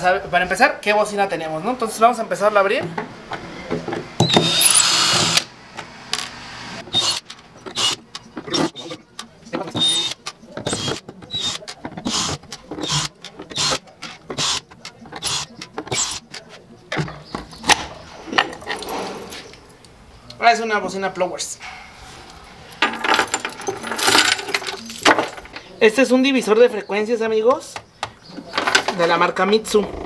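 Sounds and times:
cordless drill motor: 4.2s - 5.5s, 6.9s - 8.0s
screws clicking and knocking: 6.9s - 16.5s.

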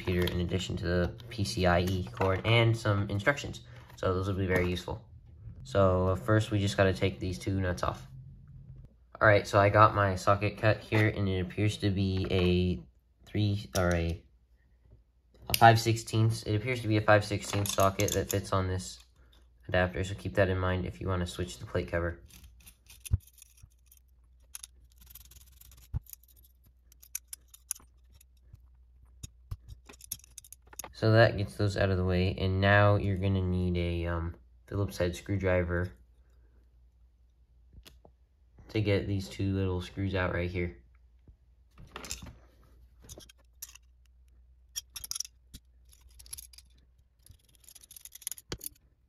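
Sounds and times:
metal nuts and washers clinking: 17.2s - 19.4s, 22.2s - 31.0s, 41.9s - 42.3s, 43.0s - 48.9s
handling scrapes: 21.7s - 31.0s.

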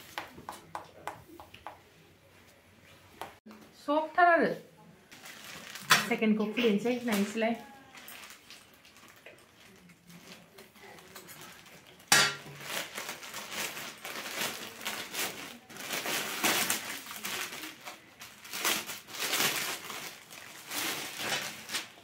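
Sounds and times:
plastic bags rustling and crinkling: 5.0s - 22.0s.

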